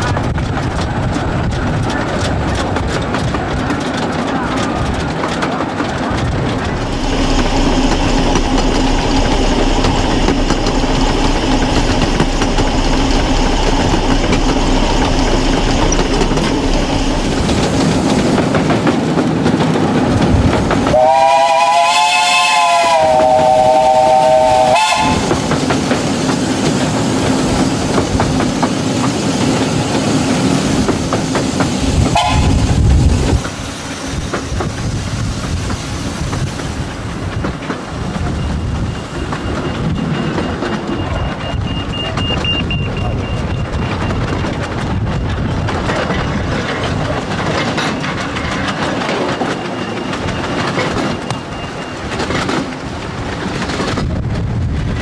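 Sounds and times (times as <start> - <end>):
carriages rattling on track: 0.0 - 55.0
train running: 0.0 - 55.0
steam whistle: 20.9 - 25.4, 32.1 - 32.7.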